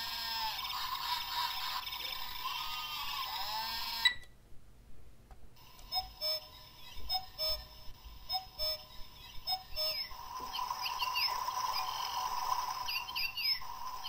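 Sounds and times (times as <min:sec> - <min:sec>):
short electronic beeps: 0:05.9 - 0:10.1
recorded birdsong: 0:08.3 - 0:14.0.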